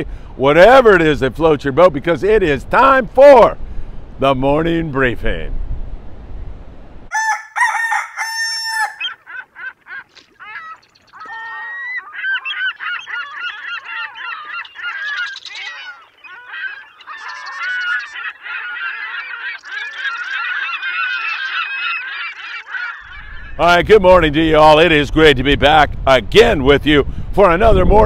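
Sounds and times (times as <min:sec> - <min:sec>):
rooster crowing: 0:07.1 - 0:09.2
geese honking: 0:07.2 - 0:23.6.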